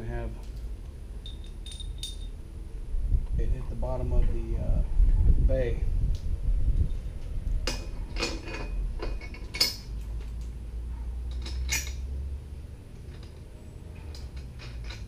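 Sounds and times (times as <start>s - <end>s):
low rumble: 0.0s - 11.3s
metal bolts clinking: 1.2s - 2.4s, 7.6s - 10.5s, 11.2s - 12.1s, 12.9s - 15.0s.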